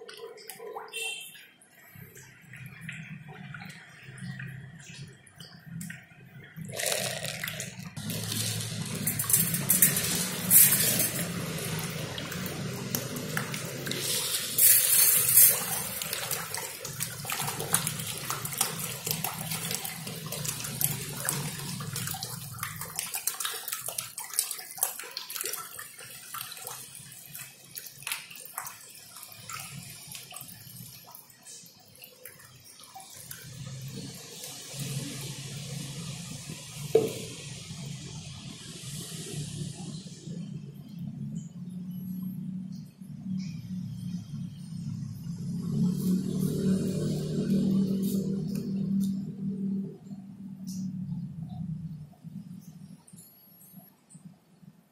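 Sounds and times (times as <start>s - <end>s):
fish splashing at water surface: 0.0s - 40.6s, 44.8s - 49.9s
low steady hum: 39.5s - 54.9s.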